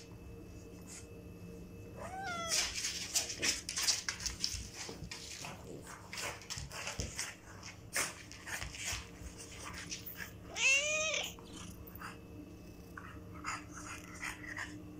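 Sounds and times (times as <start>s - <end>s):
cat meowing: 2.0s - 2.7s, 10.5s - 11.4s
pets scuffling on hard floor: 2.1s - 10.8s.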